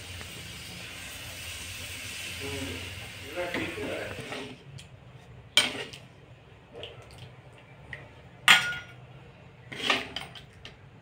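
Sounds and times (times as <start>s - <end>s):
metal ladle clinking on steel: 8.5s - 9.0s.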